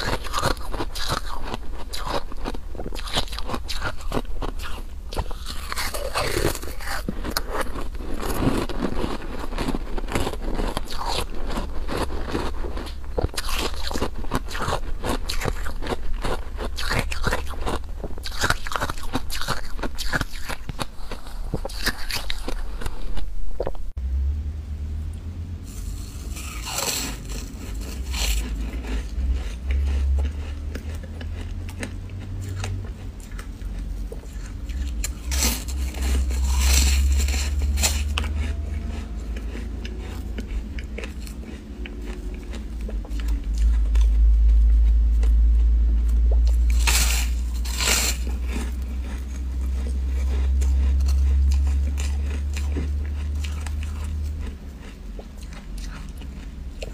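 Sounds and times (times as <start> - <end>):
crunching bites of ice: 0.0 - 22.7, 26.0 - 33.5, 34.2 - 43.7, 46.4 - 51.1
chewing: 0.0 - 23.8, 25.7 - 56.9
low rumble: 19.8 - 56.9.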